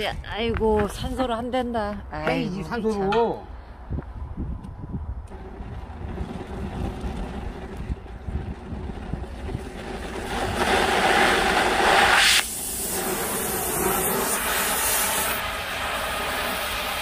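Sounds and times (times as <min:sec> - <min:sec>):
cutting torch hissing: 0:09.4 - 0:17.0.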